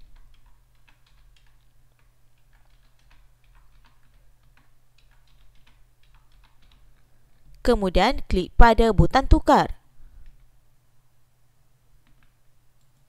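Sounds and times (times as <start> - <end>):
keyboard keystrokes clicking: 0.0 - 7.0.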